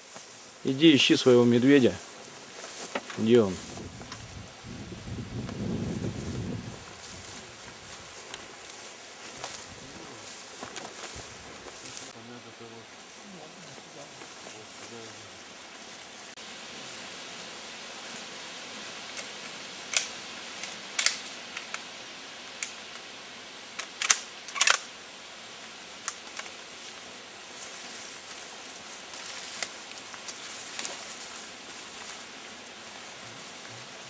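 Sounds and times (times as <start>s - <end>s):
steady hiss: 0.0s - 34.0s
twigs snapping underfoot: 29.1s - 31.4s.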